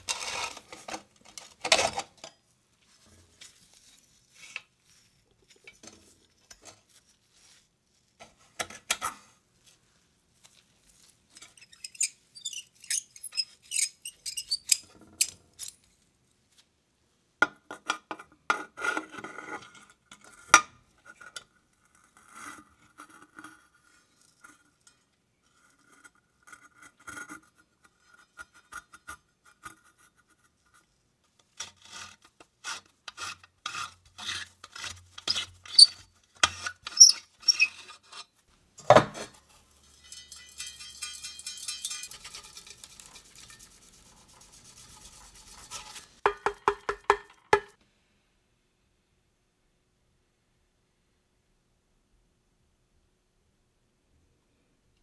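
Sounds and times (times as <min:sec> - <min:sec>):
scraping of rusty metal: 0:00.0 - 0:02.2, 0:33.2 - 0:38.4, 0:39.0 - 0:43.8.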